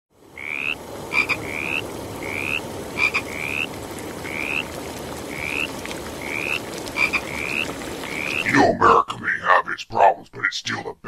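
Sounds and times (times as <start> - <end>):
low background hiss: 0.2 - 11.0
frogs chirping: 0.3 - 8.5.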